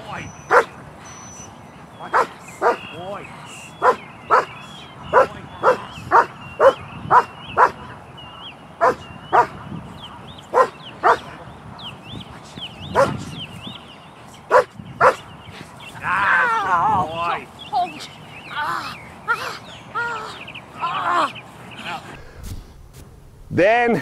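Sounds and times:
large dog barking: 0:00.5 - 0:00.7, 0:02.1 - 0:02.9, 0:03.8 - 0:04.5, 0:05.1 - 0:07.8, 0:08.8 - 0:09.6, 0:10.5 - 0:11.3, 0:12.9 - 0:13.2, 0:14.5 - 0:15.2.

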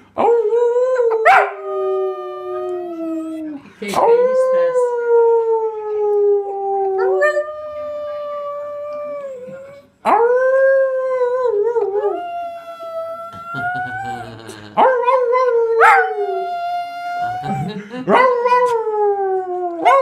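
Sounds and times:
dog howling: 0:04.2 - 0:20.0.

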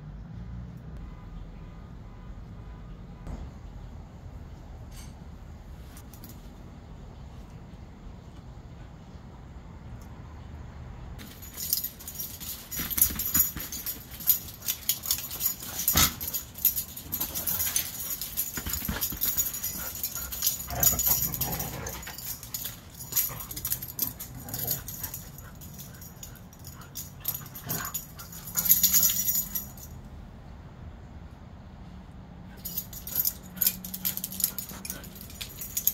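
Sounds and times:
claws clicking and scuffling: 0:11.2 - 0:29.8.

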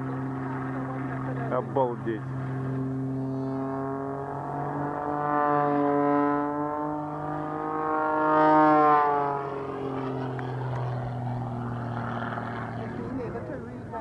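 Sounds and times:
biplane engine droning: 0:00.0 - 0:14.0.

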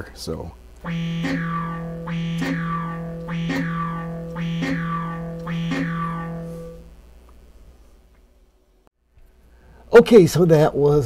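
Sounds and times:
synthesizer repeated note: 0:00.8 - 0:06.9
low synthesizer drone: 0:00.8 - 0:07.1.

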